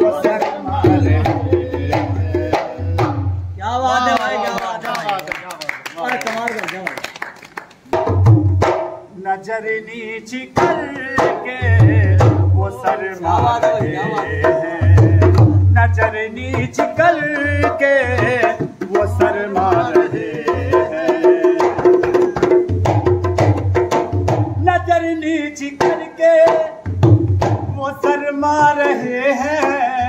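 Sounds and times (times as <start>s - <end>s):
tabla-like drum pattern: 0.0s - 3.8s, 7.8s - 9.2s, 10.4s - 30.0s.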